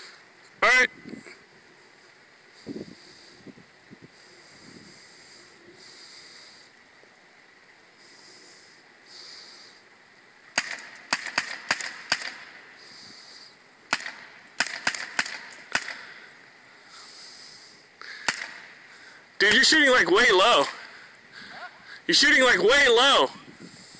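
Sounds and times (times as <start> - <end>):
paintball marker firing: 10.5 - 12.6, 13.9 - 16.1, 18.2 - 18.8.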